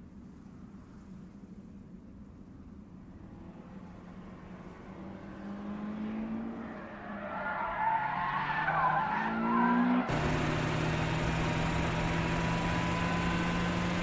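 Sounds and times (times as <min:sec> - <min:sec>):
sports car engines revving: 0:03.2 - 0:14.0.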